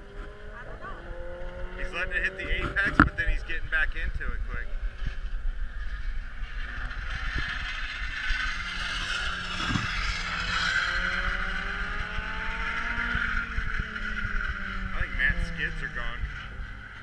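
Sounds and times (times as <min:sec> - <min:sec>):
race car passing and accelerating: 0:00.0 - 0:17.0
wind buffeting microphone: 0:00.0 - 0:17.0.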